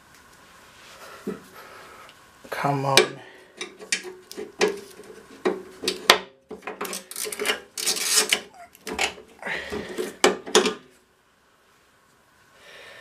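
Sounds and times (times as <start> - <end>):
wrench clicking and scraping on nut: 6.6 - 9.1.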